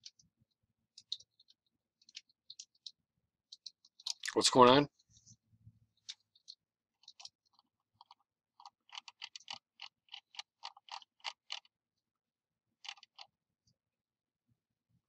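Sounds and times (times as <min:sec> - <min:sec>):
computer mouse clicks: 0:01.0 - 0:04.4, 0:06.0 - 0:11.7, 0:12.8 - 0:13.3.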